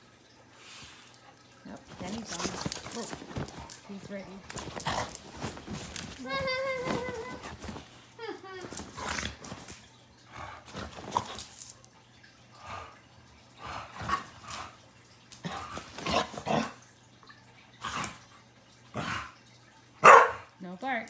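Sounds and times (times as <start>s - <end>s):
dogs play-fighting: 1.1s - 11.8s, 12.7s - 16.8s
dogs scuffling: 1.6s - 9.9s, 10.7s - 11.8s.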